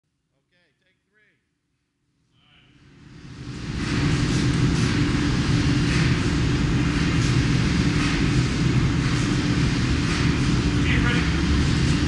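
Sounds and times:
aircraft piston engine running: 2.8s - 12.0s.

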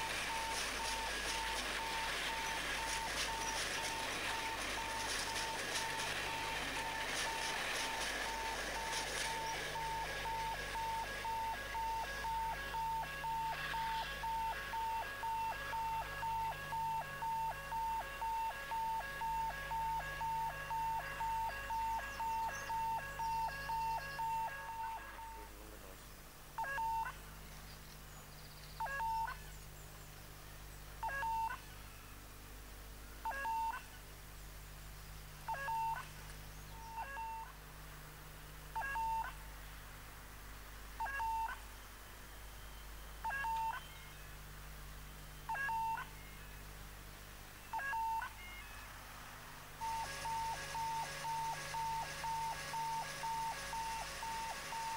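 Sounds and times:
passing train rush: 0.0s - 12.3s, 48.9s - 54.9s
electronic warning beeper: 0.0s - 25.5s, 26.6s - 27.2s, 28.9s - 29.4s, 31.0s - 31.6s, 33.3s - 33.8s, 35.5s - 36.1s, 36.8s - 37.5s, 38.8s - 39.4s, 41.0s - 41.6s, 43.2s - 44.2s, 45.4s - 46.5s, 47.7s - 48.9s, 49.8s - 54.9s.

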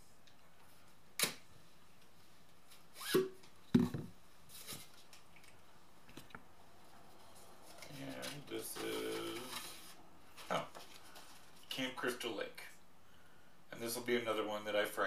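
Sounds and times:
packaging rustling and scraping: 7.2s - 11.6s.

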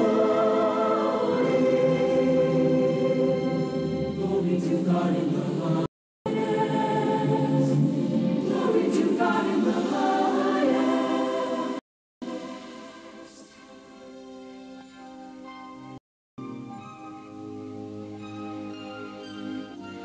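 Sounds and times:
choir singing: 0.0s - 13.9s
musical accompaniment: 0.0s - 20.0s.

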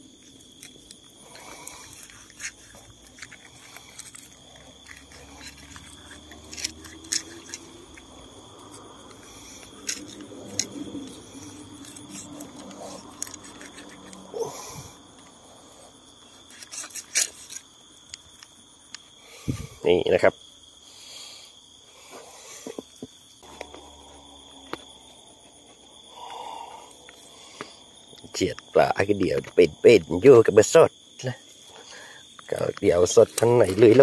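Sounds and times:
high insect trill: 0.0s - 34.0s
machete scraping fish: 0.5s - 14.7s, 16.4s - 17.7s.

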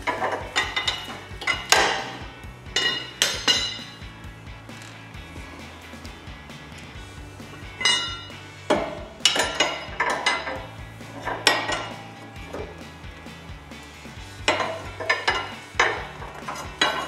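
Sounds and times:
pry bar clanking on metal: 0.0s - 2.2s, 2.8s - 4.0s, 7.8s - 12.7s, 14.4s - 17.0s.

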